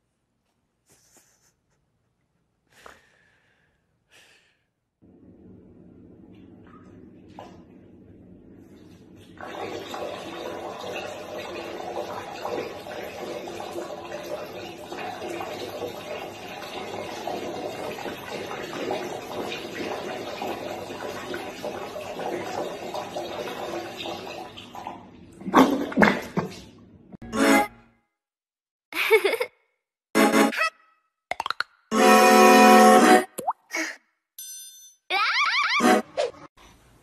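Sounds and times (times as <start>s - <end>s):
liquid pouring into a mug: 9.4s - 25.8s.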